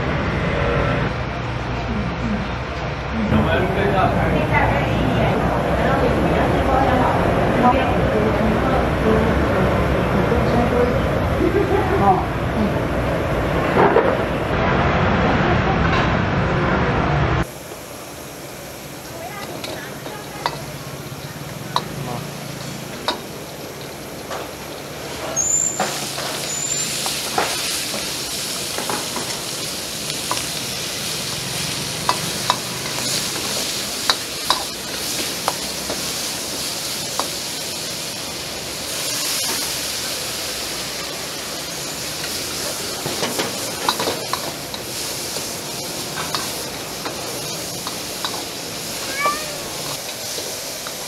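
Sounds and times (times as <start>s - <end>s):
meat sizzling in hot oil: 17.4s - 51.0s.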